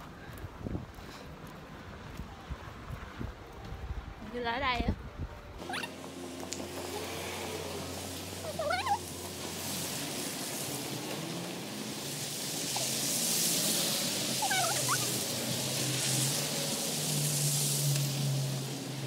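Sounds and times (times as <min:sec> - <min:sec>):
wind: 0:00.0 - 0:19.0
traffic hiss: 0:05.6 - 0:19.0.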